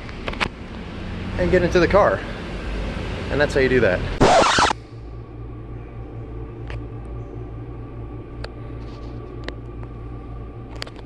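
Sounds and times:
faint steady whine: 0:04.2 - 0:11.0
low room hum: 0:04.4 - 0:11.0.

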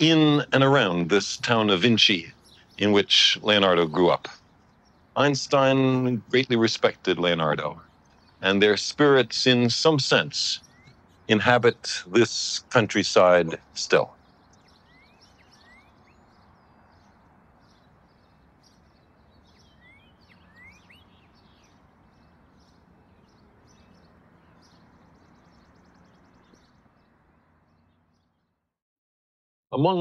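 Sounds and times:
soft steady hiss: 0:00.0 - 0:27.6
small birds chirping: 0:00.0 - 0:28.7.

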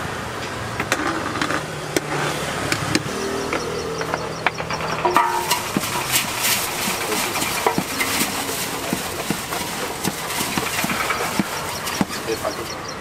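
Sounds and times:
wooden paddles scraping metal pot: 0:03.0 - 0:13.0.

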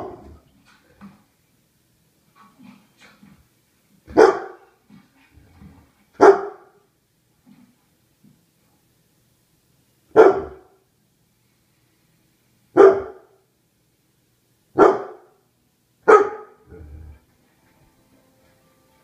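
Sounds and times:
dog barking: 0:04.1 - 0:04.7, 0:06.2 - 0:06.8, 0:10.1 - 0:10.8, 0:12.8 - 0:13.4, 0:14.8 - 0:15.4, 0:16.0 - 0:16.7.

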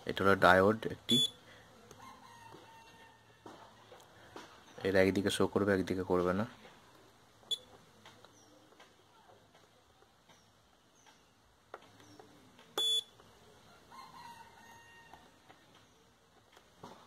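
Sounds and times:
multimeter high beep: 0:01.1 - 0:01.4, 0:07.5 - 0:07.7, 0:12.8 - 0:13.2.

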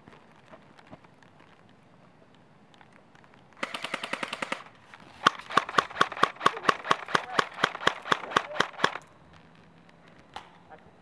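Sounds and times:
airsoft rifles firing: 0:03.6 - 0:09.1.

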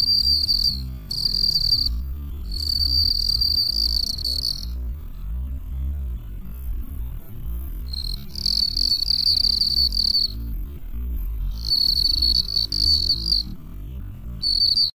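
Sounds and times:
cricket chirping: 0:00.0 - 0:05.0, 0:07.8 - 0:10.6, 0:11.3 - 0:13.7, 0:14.4 - 0:14.9
low rumble: 0:00.0 - 0:14.8.

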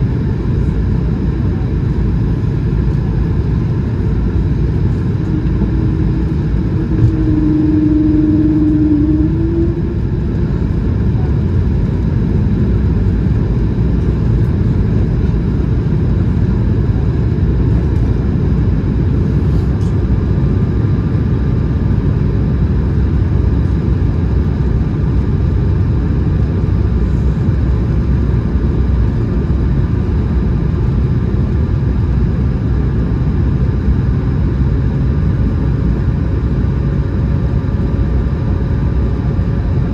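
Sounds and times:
airplane cabin rumble: 0:00.0 - 0:39.9
steady hum: 0:00.0 - 0:39.9
faint thin whine: 0:03.6 - 0:11.6.

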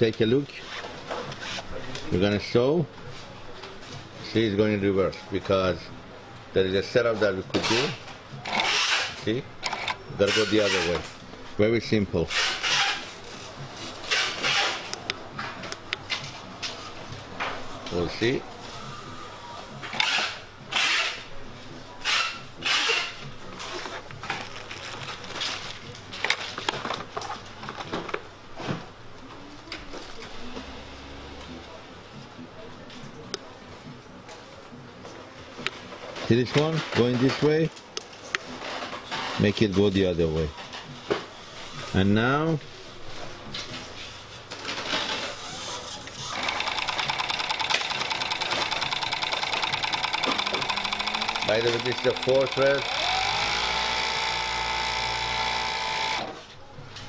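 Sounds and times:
overlock sewing machine running: 0:46.1 - 0:56.4.

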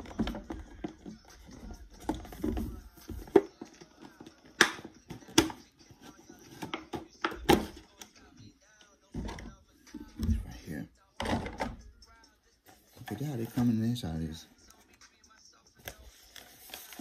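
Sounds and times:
box handling and rubbing: 0:00.0 - 0:07.1.

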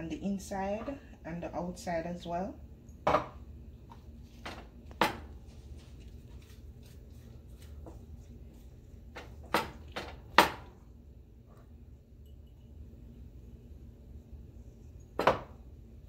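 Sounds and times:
low steady hum: 0:00.0 - 0:16.0
hands rubbing seasoning into fish: 0:05.5 - 0:08.8.

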